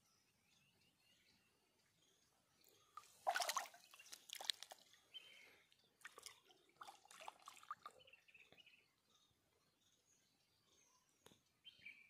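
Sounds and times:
water splashing and dripping: 3.0 - 5.0, 6.0 - 7.9.

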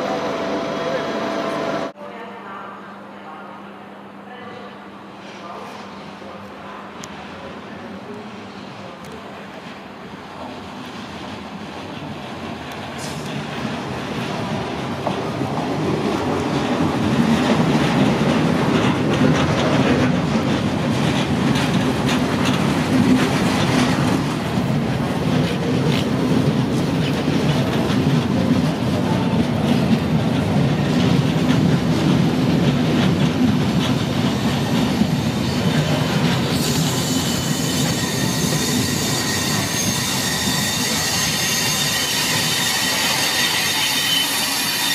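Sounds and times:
train wheels clattering and rumbling: 10.4 - 44.9
high steady wheel squeal: 34.6 - 44.9.

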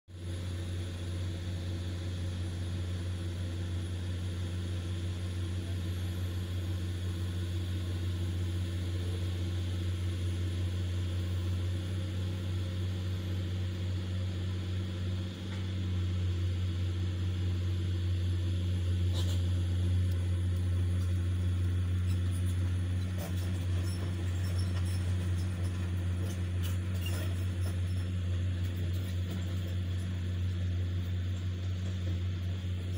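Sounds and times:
excavator diesel engine running: 0.2 - 32.9
light clicks and clanks: 20.1 - 30.1.

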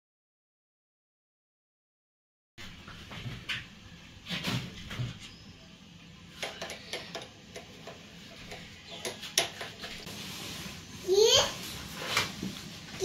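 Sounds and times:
kitchen handling clicks and knocks: 6.4 - 10.0.

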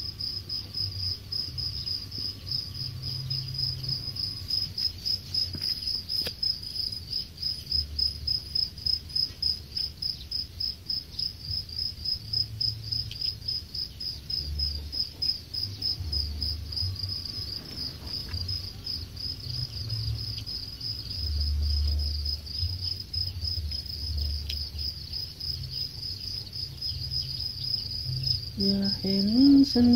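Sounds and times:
crickets chirping: 0.0 - 29.9.

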